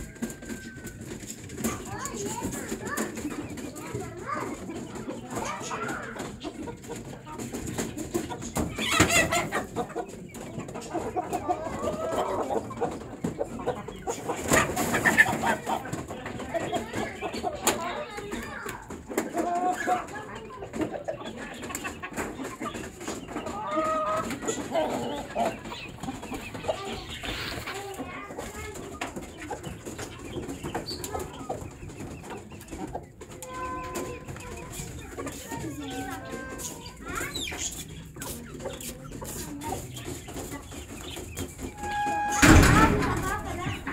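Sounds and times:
chickens clucking: 0.0s - 43.9s
loud chicken calls: 8.5s - 10.2s, 22.0s - 27.9s, 41.4s - 43.9s.

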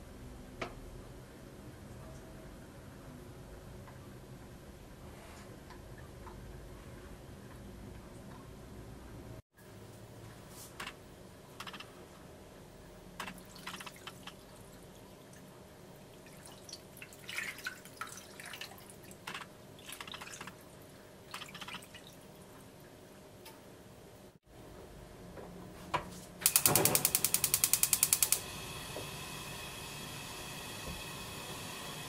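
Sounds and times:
faint steady hum: 0.0s - 32.0s
liquid pouring and splashing: 16.2s - 19.2s, 21.3s - 22.2s.

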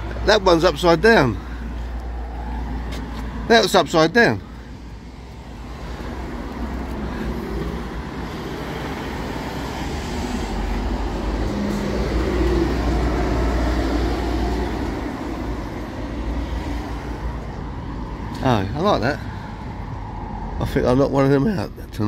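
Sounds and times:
vehicle passing by: 4.9s - 21.0s.

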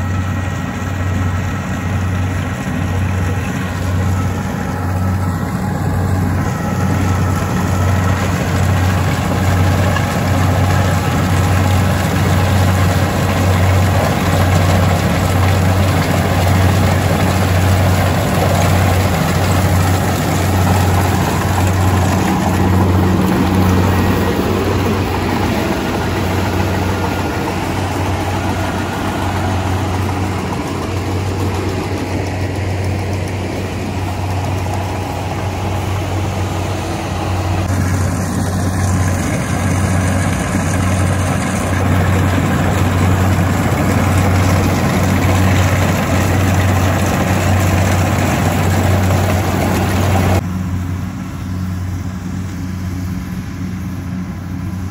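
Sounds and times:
combine harvester engine drone: 0.0s - 54.9s.

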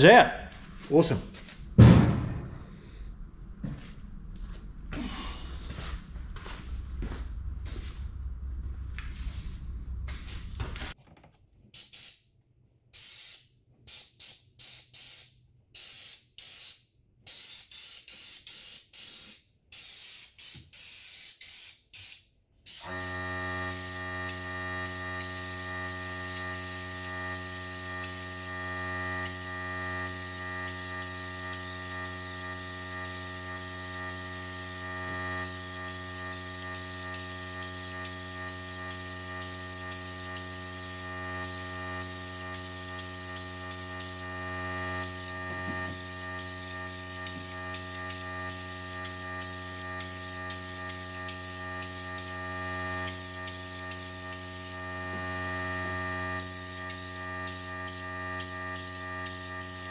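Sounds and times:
steady hum: 0.0s - 11.0s
spray gun hissing: 13.0s - 28.6s, 29.2s - 44.3s, 45.0s - 52.4s, 53.0s - 54.8s, 56.4s - 59.9s.

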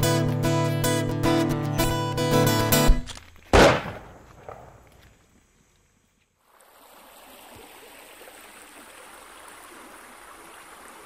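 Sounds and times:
river water flowing: 6.4s - 11.0s.

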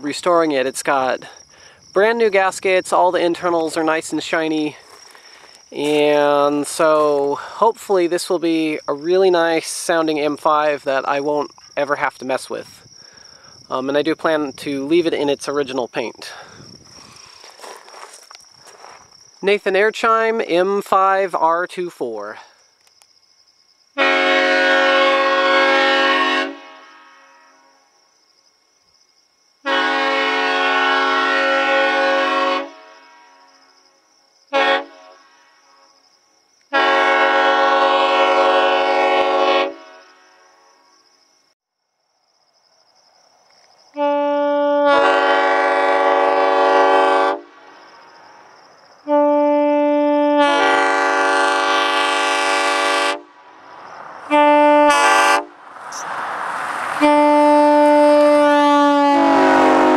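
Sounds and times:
insects chirping: 0.0s - 59.9s
air horn chord blasts: 24.0s - 27.7s, 36.7s - 40.2s, 44.0s - 47.4s, 49.1s - 53.2s, 54.3s - 55.6s, 57.0s - 59.9s.

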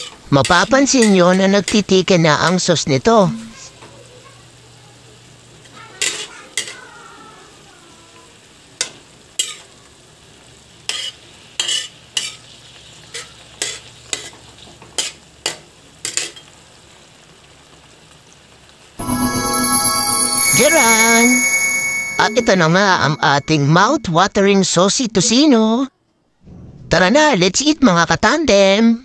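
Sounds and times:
meat sizzling in sauce: 0.0s - 19.0s
spatula scraping a metal pan: 10.9s - 12.5s.

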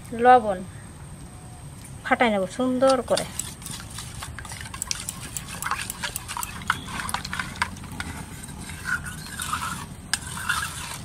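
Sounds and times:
spoon clinking against metal bowl: 4.8s - 7.8s.

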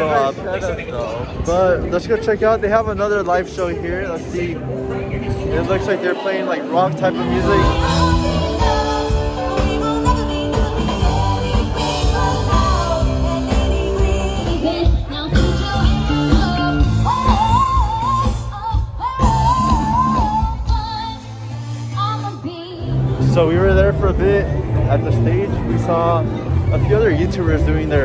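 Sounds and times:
live rock band playing: 4.6s - 28.0s.

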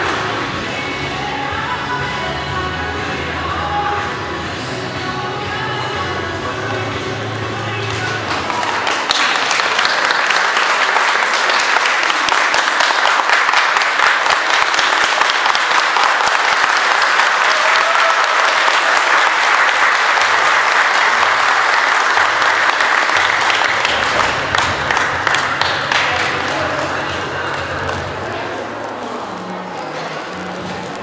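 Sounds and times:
audience applauding: 7.7s - 31.0s.

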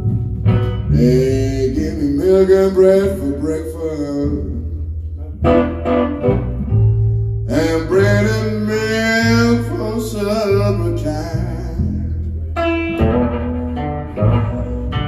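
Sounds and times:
acoustic guitar: 0.0s - 15.0s
double bass: 0.0s - 15.0s
man singing: 0.9s - 4.9s, 7.5s - 12.4s.

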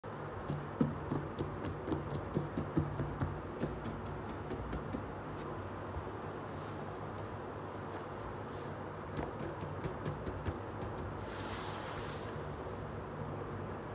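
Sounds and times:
hands tapping cardboard box: 0.4s - 5.1s, 9.1s - 11.2s.

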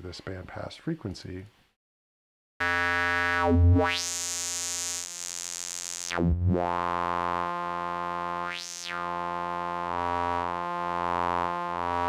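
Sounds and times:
synth note with sweeping resonant filter: 2.6s - 12.0s.

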